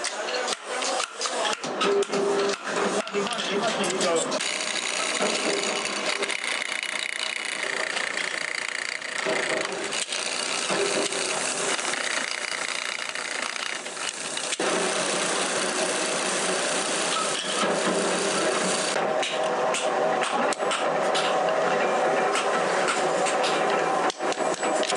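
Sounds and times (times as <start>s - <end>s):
machine hum: 4.2s - 24.9s
drill press boring steel: 4.4s - 19.0s.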